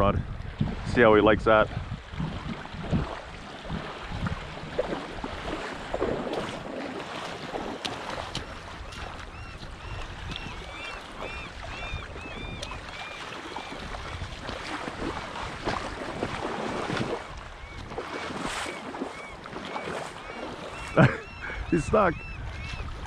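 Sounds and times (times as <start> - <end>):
wind buffeting microphone: 0.0 - 19.6, 20.8 - 23.0
waves washing on pebbles: 2.4 - 11.8, 12.4 - 19.0.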